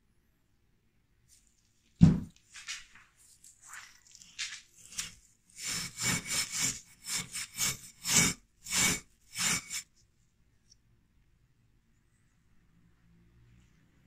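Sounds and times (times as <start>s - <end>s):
wire brush scrubbing metal: 4.0s - 9.9s.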